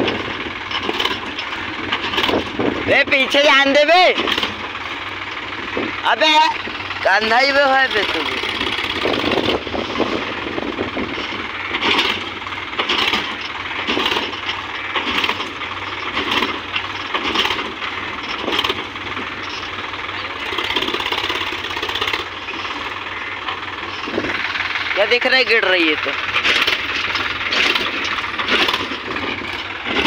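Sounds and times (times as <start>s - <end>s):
tractor diesel engine running: 0.0s - 30.0s
soil clattering out of trolley: 26.3s - 30.0s.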